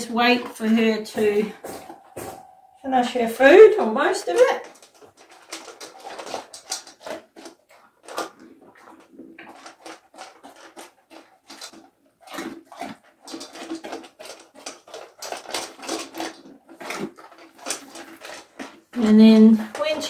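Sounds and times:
dog eating from metal bowl: 0.0s - 20.0s.

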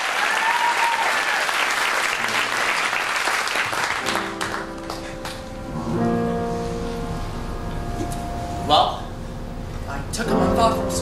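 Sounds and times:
audience applauding: 0.0s - 5.6s
piano chords: 1.8s - 11.0s.

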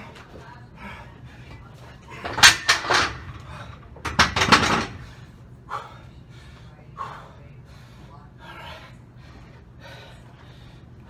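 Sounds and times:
dumbbells clanking: 2.1s - 5.2s.

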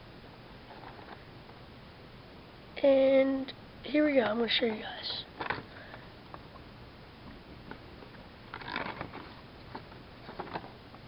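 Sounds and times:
plastic package crackling: 8.5s - 9.3s.

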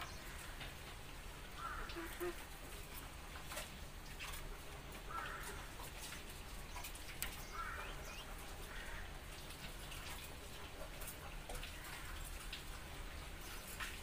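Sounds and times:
short warbled bird calls: 1.6s - 2.5s.

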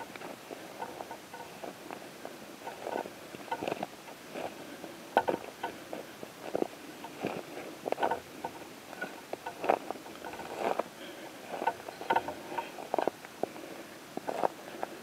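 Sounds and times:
footsteps crunching through dry grass: 5.6s - 13.6s.

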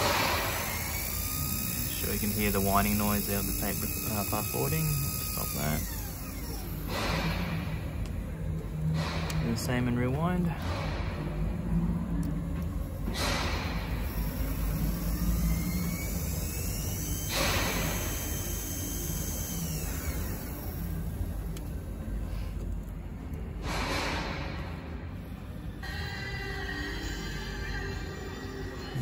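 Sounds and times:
tape deck rewinding whine: 0.0s - 7.2s, 14.0s - 21.7s.

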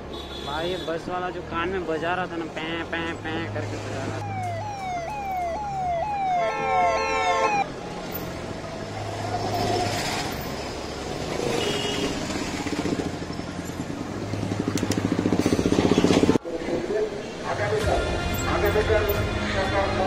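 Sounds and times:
street traffic noise: 0.0s - 20.0s
warbling siren horn: 4.2s - 7.7s.

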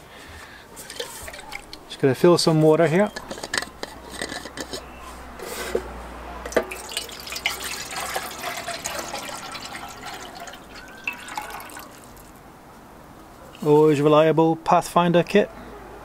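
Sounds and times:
water pouring into metal tin: 0.8s - 1.9s, 6.5s - 12.3s.

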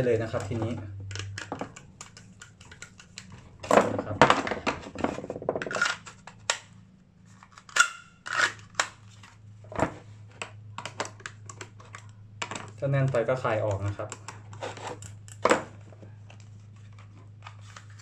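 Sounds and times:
plastic holster clacking and rattling: 0.4s - 6.7s.

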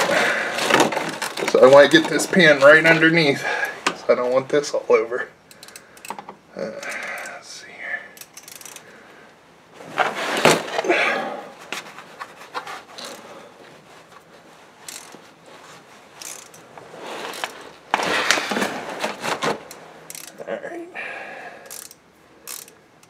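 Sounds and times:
hand tools clicking and scraping: 0.0s - 4.0s, 5.5s - 7.4s, 8.2s - 8.9s, 11.6s - 20.5s, 21.6s - 22.8s.

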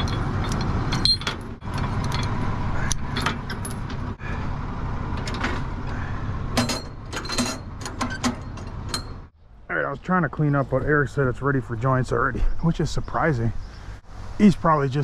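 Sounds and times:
chains clinking and rattling: 0.0s - 4.0s, 6.6s - 9.3s
engine idling: 0.0s - 14.0s.

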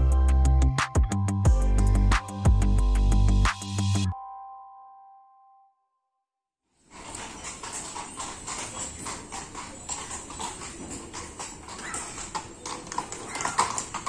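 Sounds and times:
hooves clip-clopping on cobblestones: 6.8s - 14.0s.

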